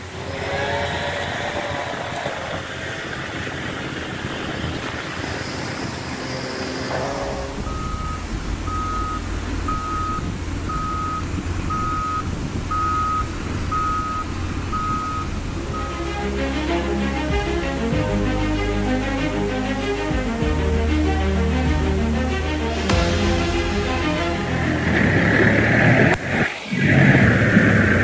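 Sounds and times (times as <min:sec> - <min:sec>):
diesel engine running: 0:00.0 - 0:28.0
reverse alarm beeping: 0:07.6 - 0:16.1.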